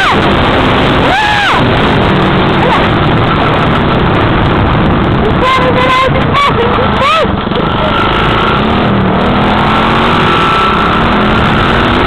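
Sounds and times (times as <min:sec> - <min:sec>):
rising and falling whine: 0:00.0 - 0:05.4
dirt bike engine running: 0:00.0 - 0:12.0
wind noise on microphone: 0:00.0 - 0:12.0.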